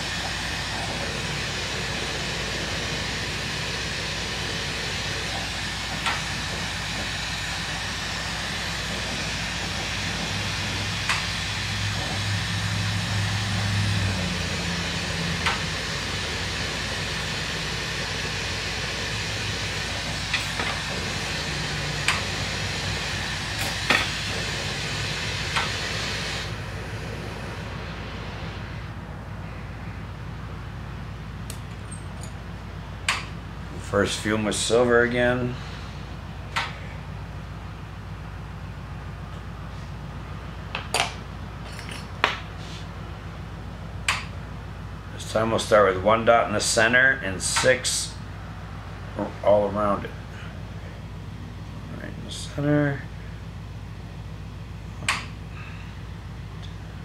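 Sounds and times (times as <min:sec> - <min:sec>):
torch hissing: 0:00.0 - 0:28.9.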